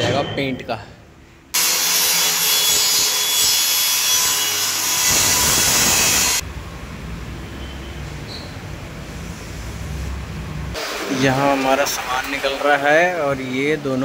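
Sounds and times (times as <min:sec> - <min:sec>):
circular saw cutting fibreboard: 0:01.6 - 0:06.4.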